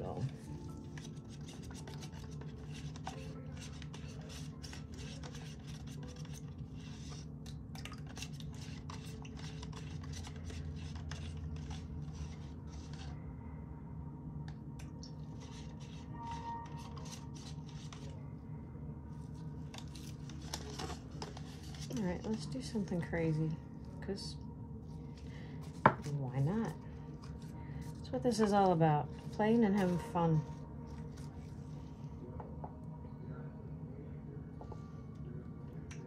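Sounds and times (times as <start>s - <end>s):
stir stick scraping plastic cup: 0.0s - 13.2s, 15.2s - 18.2s, 19.7s - 22.5s
low hum: 0.0s - 36.0s.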